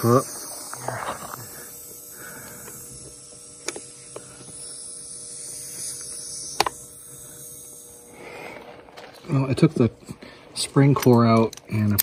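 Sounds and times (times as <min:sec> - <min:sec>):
air hissing from tire valve: 0:00.0 - 0:09.0.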